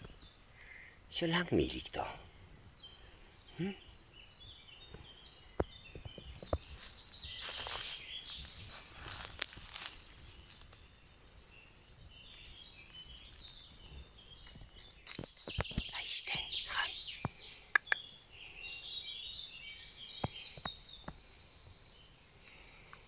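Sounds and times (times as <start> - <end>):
birds chirping and singing: 0.0 - 23.0
rustling in dry leaves: 6.2 - 15.4
sharp snaps: 17.2 - 18.1.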